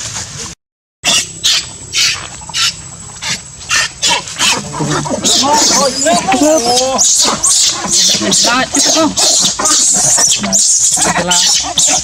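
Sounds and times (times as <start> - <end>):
monkey screeching: 1.0 - 12.0.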